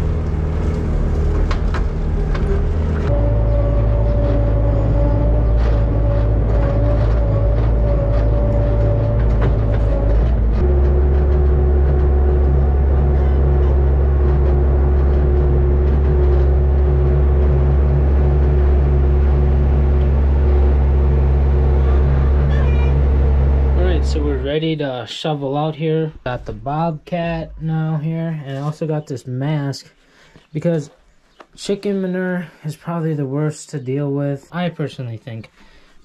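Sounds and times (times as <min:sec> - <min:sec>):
loader engine running: 0:00.0 - 0:28.1.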